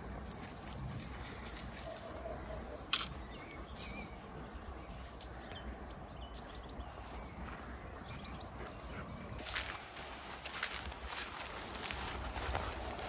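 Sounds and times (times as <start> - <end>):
open field background noise: 0.0 - 13.0
faint bird chirps: 1.2 - 9.8.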